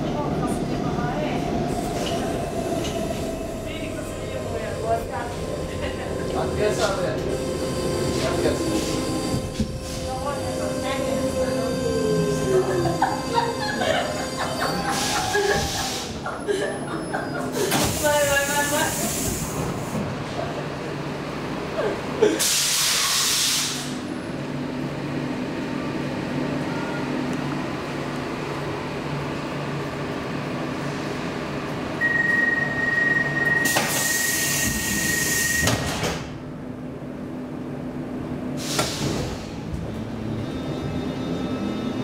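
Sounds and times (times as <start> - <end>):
metro car equipment hum: 1.1 - 16.2
steady high beep: 32.0 - 33.7
air hissing: 38.6 - 39.6.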